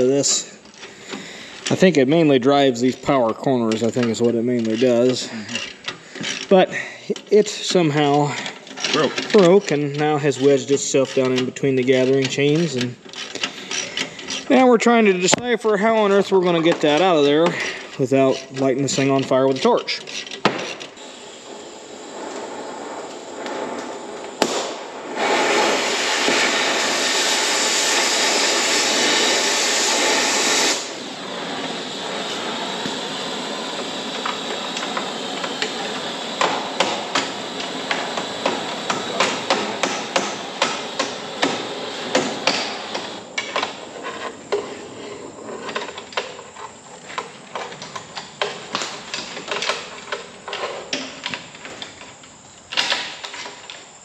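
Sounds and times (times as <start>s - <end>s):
loud rush of noise: 21.0s - 43.4s.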